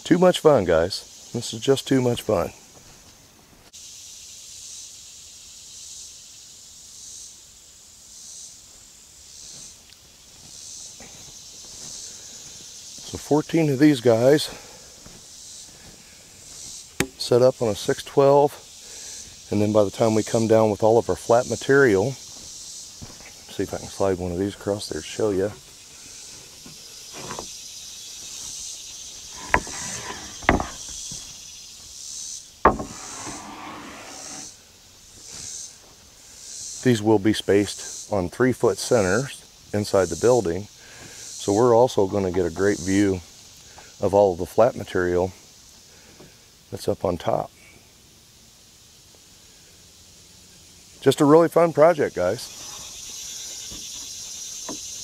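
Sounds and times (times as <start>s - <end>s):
insects buzzing: 0.0s - 55.0s
wooden board knocking on joists: 29.4s - 31.3s, 32.6s - 33.5s.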